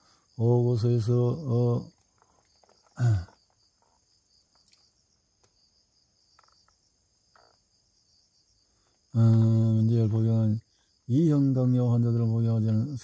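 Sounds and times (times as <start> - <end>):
high-pitched insect chirring: 0.6 - 11.6.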